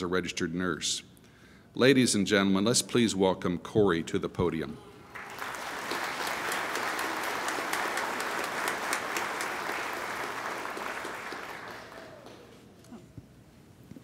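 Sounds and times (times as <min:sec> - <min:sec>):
audience applauding: 0:05.1 - 0:12.7.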